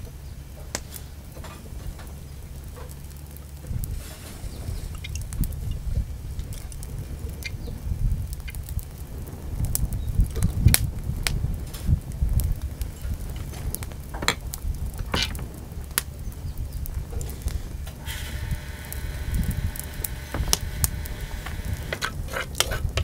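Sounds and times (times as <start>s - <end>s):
low rumble: 0.0s - 23.0s
wood fire crackling: 0.0s - 23.0s
sharp pops: 17.2s - 23.0s.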